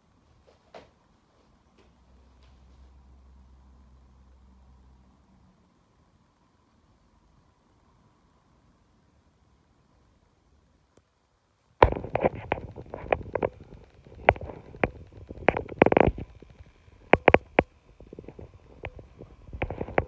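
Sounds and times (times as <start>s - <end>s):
phone handling knocks and rubbing: 11.8s - 20.0s.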